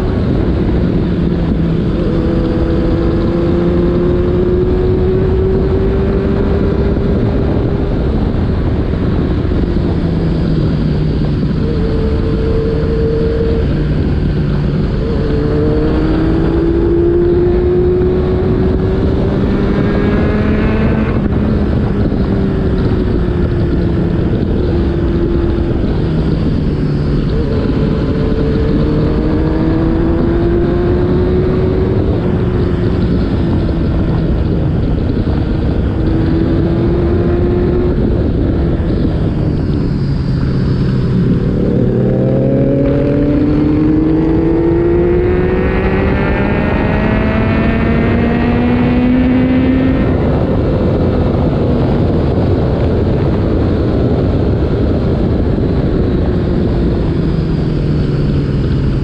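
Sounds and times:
motorcycle engine revving: 0.0 - 59.0
steady rush of noise: 0.0 - 59.0.

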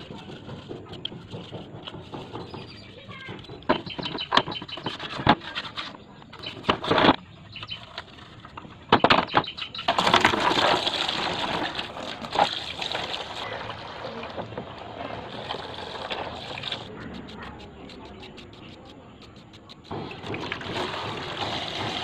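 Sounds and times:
brush scrubbing: 0.0 - 6.9, 15.0 - 22.0
hose water splashing into basin: 9.9 - 16.9, 19.9 - 22.0.

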